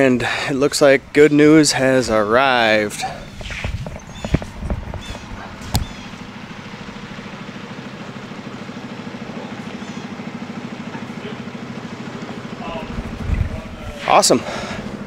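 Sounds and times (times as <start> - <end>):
engine running: 0.0 - 15.0.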